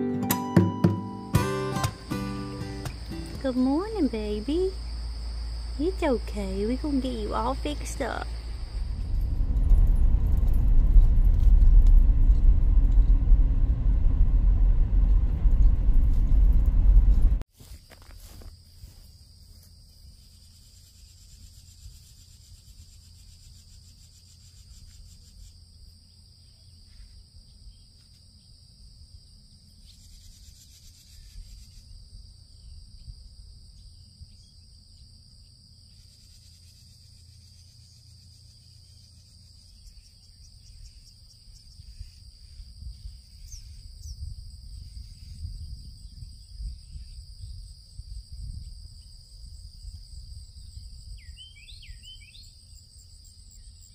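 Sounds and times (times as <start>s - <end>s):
insects chirping: 1.0s - 11.3s, 17.6s - 53.9s
low rumble: 7.6s - 17.4s.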